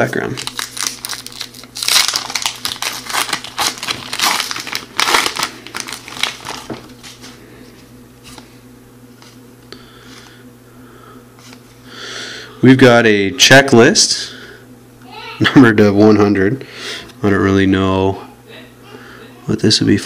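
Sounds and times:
foil wrapper crinkling and tearing: 0.0 - 7.2
cards rustling: 0.0 - 7.4.

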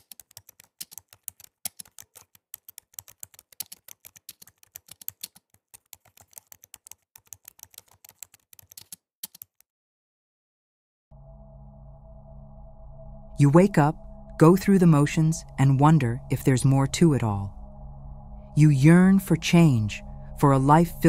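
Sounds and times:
keyboard key clicks: 0.0 - 9.6.

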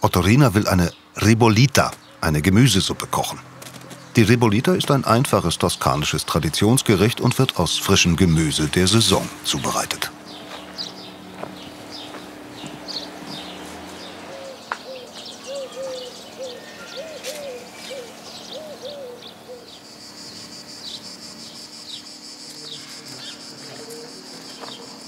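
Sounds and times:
bird hooting: 2.0 - 25.0
steady high insect buzz: 3.4 - 25.0
high bird chirps: 6.9 - 25.0.

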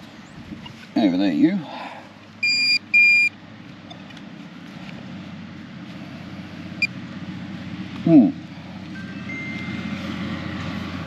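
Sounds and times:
metal detector beeping: 2.4 - 3.3, 8.9 - 9.9.

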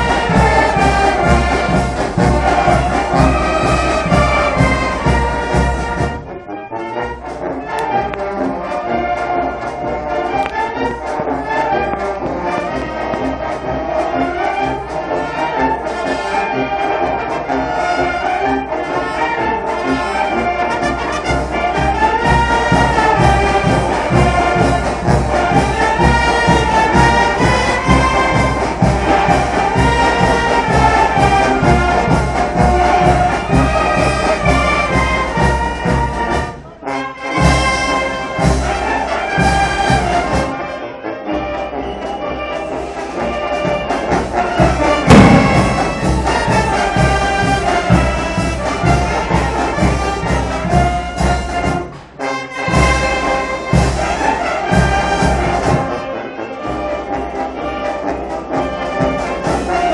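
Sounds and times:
brass band playing: 0.0 - 59.9
bass drum beat: 45.0 - 47.6.

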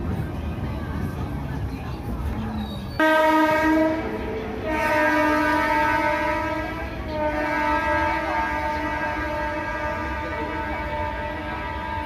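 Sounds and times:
moving train rumble: 0.0 - 12.0
train horn blasts: 3.0 - 12.0.

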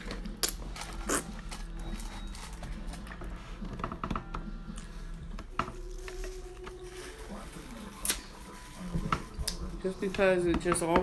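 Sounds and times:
noodle slurping: 1.0 - 1.4.

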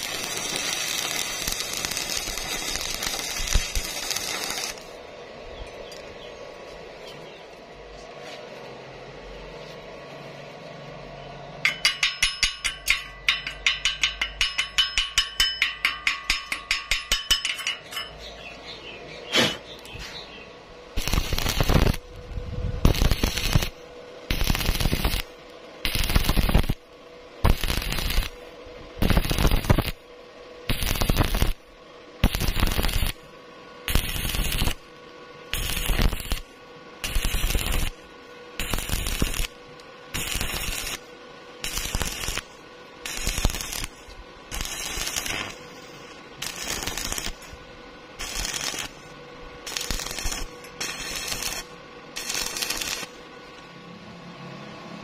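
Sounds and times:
welding arc crackling: 0.0 - 5.1, 20.9 - 53.3.

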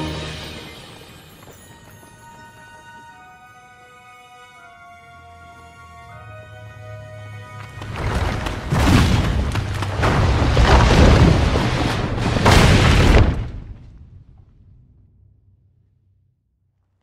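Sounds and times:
falling rock and debris crashing: 7.8 - 14.0.

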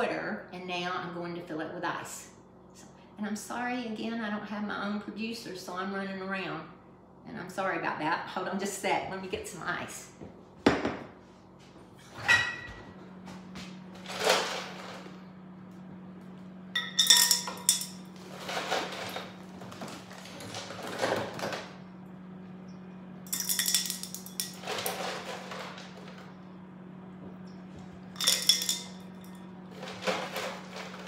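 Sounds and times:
ice cubes clinking into glass bowl: 16.8 - 19.3, 23.3 - 25.7, 28.2 - 31.0.

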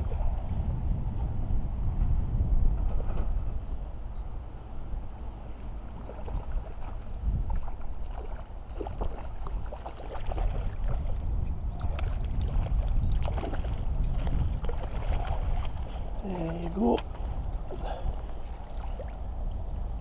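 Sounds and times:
wind buffeting microphone: 0.0 - 20.0
fish splashing in water: 6.0 - 11.1, 11.8 - 15.9.

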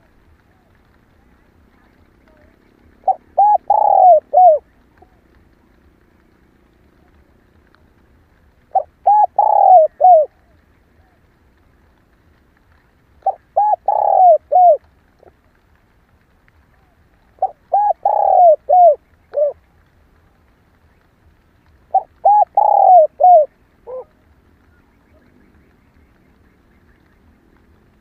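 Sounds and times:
dove cooing: 0.5 - 6.0, 8.7 - 11.2, 13.2 - 15.3, 16.7 - 19.6, 21.8 - 25.7.

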